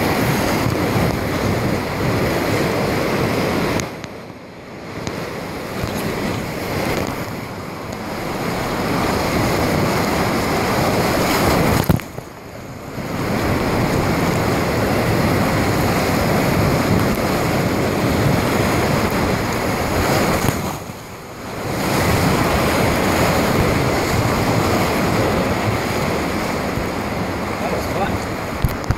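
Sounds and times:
whitewater rushing: 0.0s - 28.9s.

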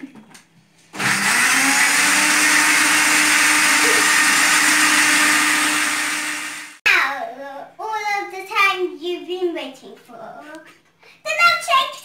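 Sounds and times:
blender motor running: 0.9s - 6.8s.

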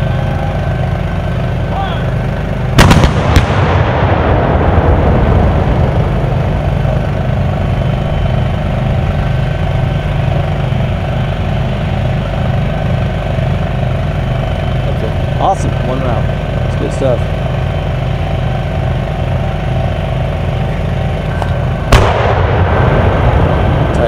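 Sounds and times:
diesel engines idling: 0.0s - 24.0s
long rolling rumble: 0.0s - 24.0s
cannon blasts: 2.7s - 11.2s, 21.6s - 24.0s.

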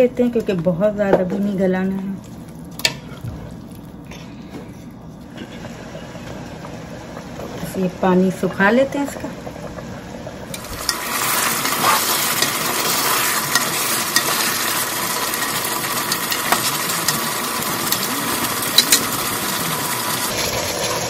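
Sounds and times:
curry sizzling in a pot: 5.7s - 21.0s
wooden spoon stirring: 10.6s - 20.3s.

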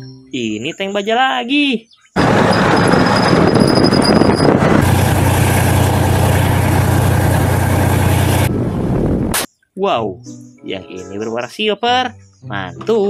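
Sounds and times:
tank engine running: 2.2s - 8.9s
low drone: 4.8s - 9.4s.

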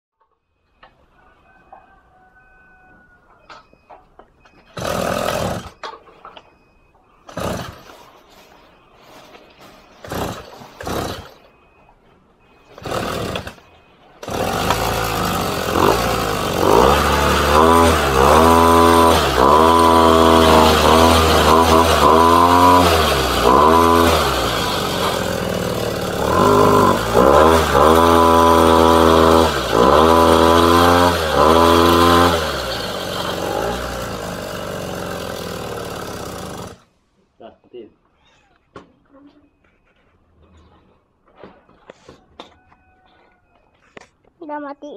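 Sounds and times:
two-stroke engine revving: 4.7s - 6.0s, 7.3s - 8.1s, 10.0s - 11.6s, 12.6s - 36.9s.

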